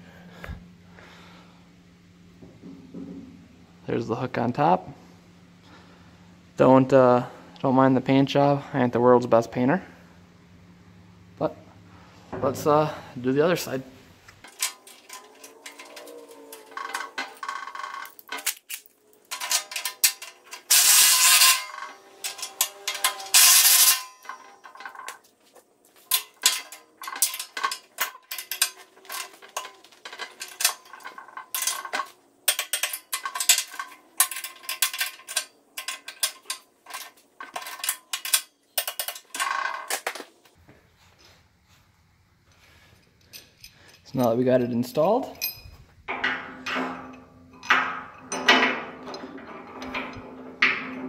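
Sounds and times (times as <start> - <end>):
wrench rasping: 14.5 - 25.2
wrench clicking on metal: 18.0 - 25.2.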